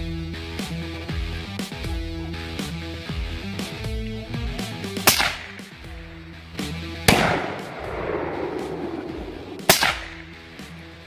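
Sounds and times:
suppressed rifle shots: 5.1 - 6.0, 7.1 - 10.4.

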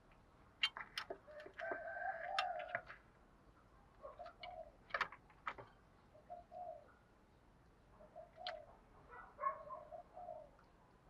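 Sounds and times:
dove cooing: 6.2 - 6.9, 9.7 - 10.5.

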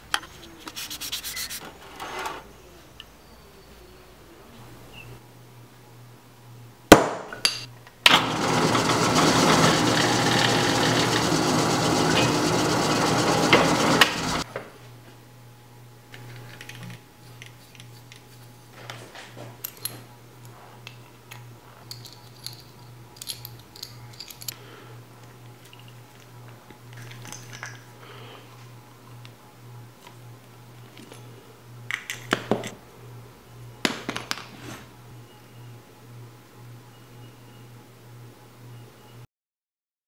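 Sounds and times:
hammer striking punch: 6.9 - 7.4
power drill boring metal: 8.2 - 14.4.

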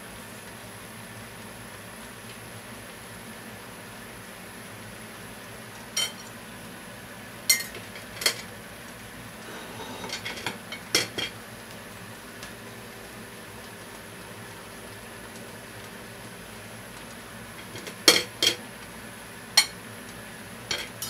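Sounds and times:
pasta boiling in a frying pan: 0.0 - 21.0.

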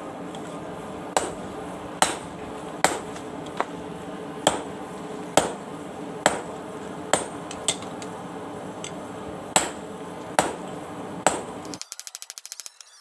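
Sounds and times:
hammer striking steel on anvil: 1.2 - 1.4, 2.0 - 3.3, 4.4 - 4.8, 5.4 - 5.6, 6.2 - 7.9, 9.6 - 9.8, 10.4 - 11.8.

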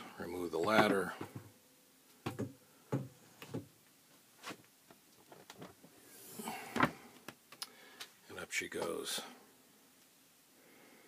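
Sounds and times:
ladder knocking against wood: 0.6 - 1.5.

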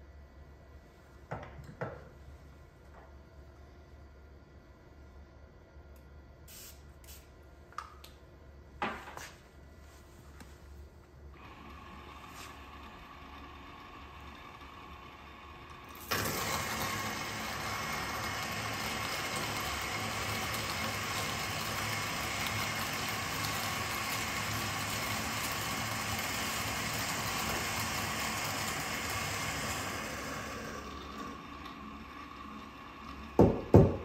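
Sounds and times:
electric coffee grinder whirring: 11.4 - 34.0.

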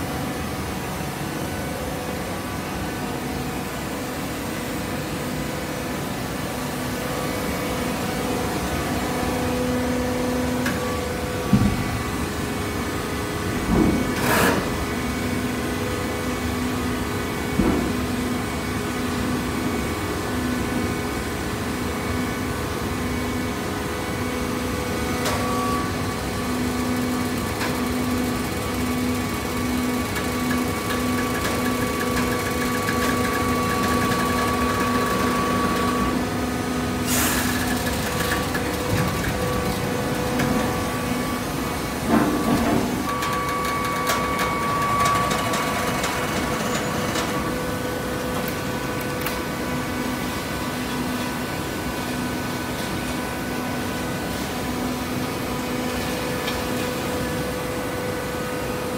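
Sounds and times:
hydraulic baler humming: 25.2 - 50.8.

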